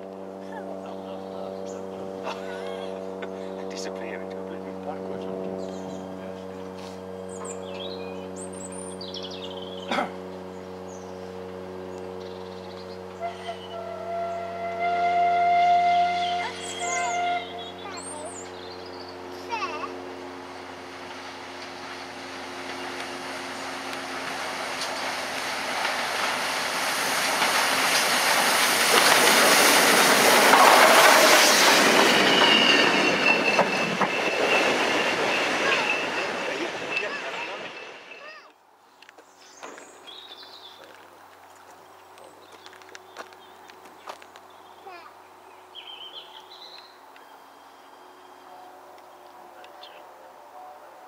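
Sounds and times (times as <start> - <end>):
steam locomotive rumbling past: 0.0 - 38.5, 39.8 - 51.0
small birds chirping: 7.3 - 9.9, 39.1 - 50.1
high wheel squeal: 13.1 - 18.4, 28.8 - 38.5.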